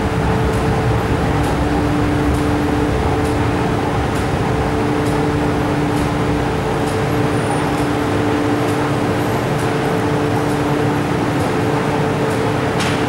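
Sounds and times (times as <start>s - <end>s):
train humming at platform: 0.0s - 13.0s.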